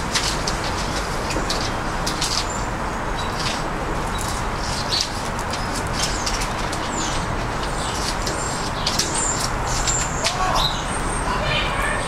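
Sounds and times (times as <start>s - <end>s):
steady background noise: 0.0s - 12.0s
small birds chirping: 0.9s - 12.0s.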